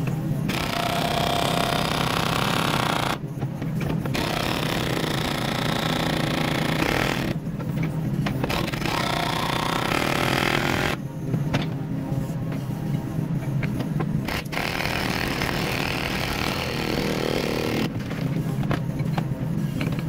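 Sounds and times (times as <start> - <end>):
hydraulic breaker hammering concrete: 0.5 - 3.2, 4.1 - 7.4, 8.5 - 11.0, 14.3 - 18.0.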